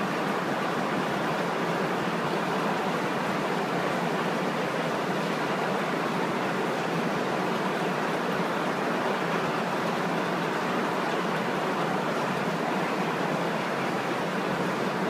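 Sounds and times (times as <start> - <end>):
aquarium water rushing: 0.0 - 15.0.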